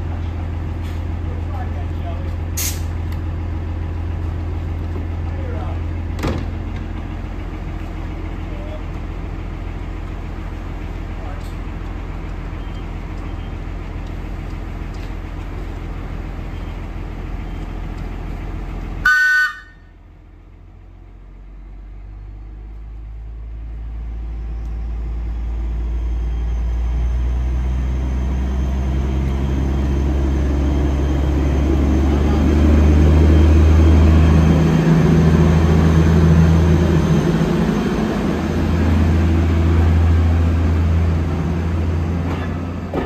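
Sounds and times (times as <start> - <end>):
electric railcar hum: 3.1 - 43.0
short horn toot: 19.0 - 19.8.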